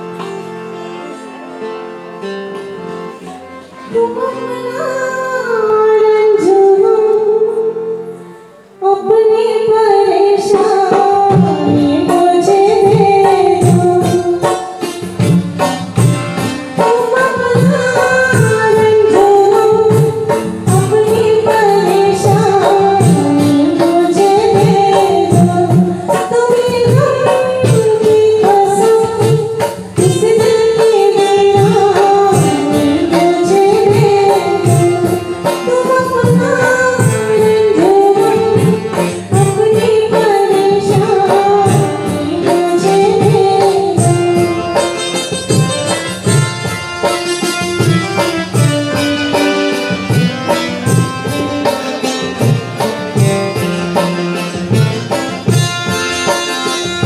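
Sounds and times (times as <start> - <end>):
instrumental accompaniment: 0.0 - 57.0
woman singing: 3.8 - 15.4, 16.4 - 46.6
steady percussion beat: 11.3 - 57.0.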